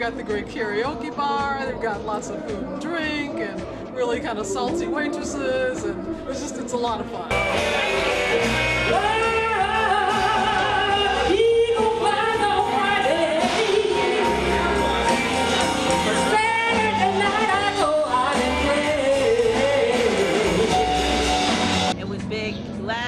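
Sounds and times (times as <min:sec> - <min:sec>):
bass line: 0:07.3 - 0:23.0.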